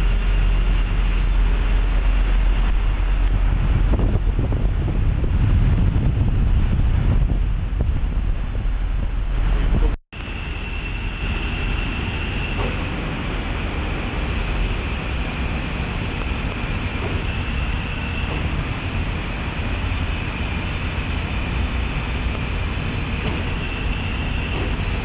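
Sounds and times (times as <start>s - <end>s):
low factory rumble: 0.0s - 25.0s
hiss: 10.2s - 25.0s.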